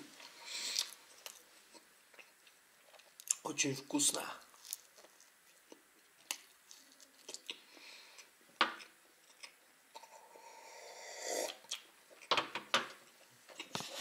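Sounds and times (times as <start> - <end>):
chewing with wet mouth clicks: 5.0 - 10.1.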